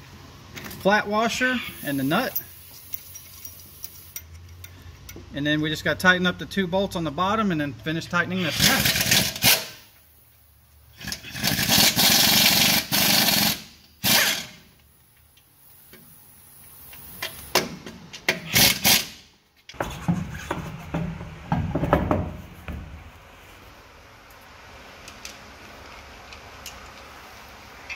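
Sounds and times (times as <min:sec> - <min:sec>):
power tool tightening bolts: 0:08.5 - 0:09.8, 0:11.0 - 0:14.6, 0:18.3 - 0:19.2.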